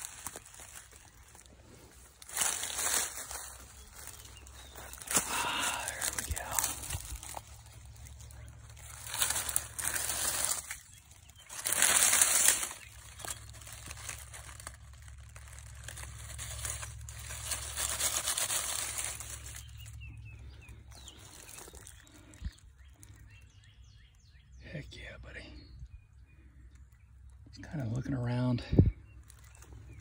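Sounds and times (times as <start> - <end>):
dry leaves rustling and crackling: 0.0 - 23.7, 29.0 - 30.0.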